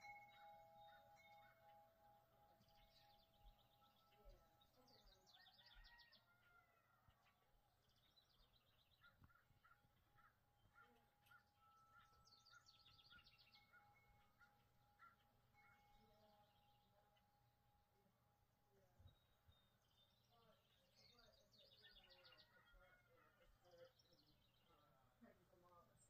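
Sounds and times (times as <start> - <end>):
bird trills: 0.0 - 6.1, 9.0 - 16.7
faint steady tone: 0.0 - 7.8.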